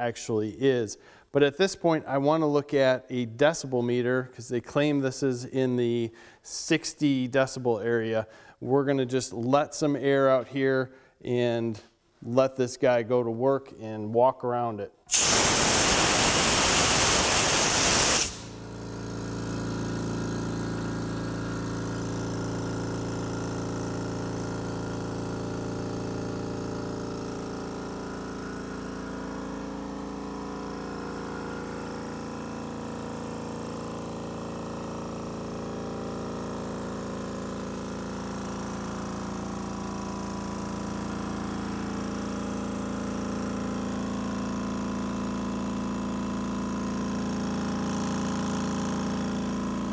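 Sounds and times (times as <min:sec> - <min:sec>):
air hissing out: 0:15.1 - 0:18.8
air compressor running: 0:15.1 - 0:49.9.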